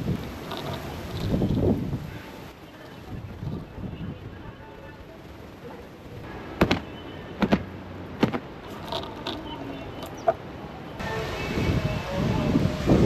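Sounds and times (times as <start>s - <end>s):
plastic clothespins clicking: 0.3s - 1.4s, 8.7s - 10.4s.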